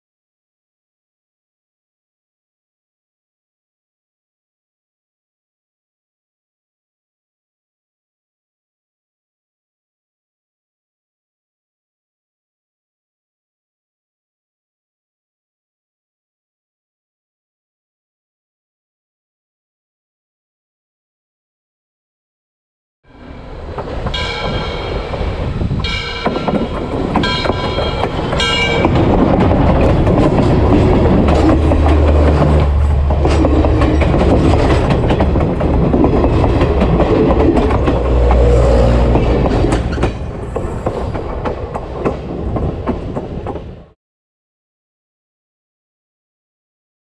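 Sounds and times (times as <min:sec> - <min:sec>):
train rumbling overhead: 0:23.1 - 0:44.0
wheels clicking over rails: 0:23.6 - 0:43.9.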